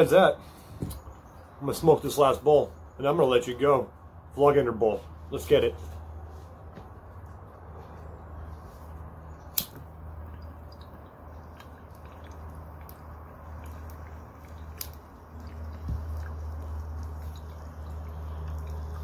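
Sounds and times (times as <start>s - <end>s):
water bubbling in a bong: 10.1s - 19.0s.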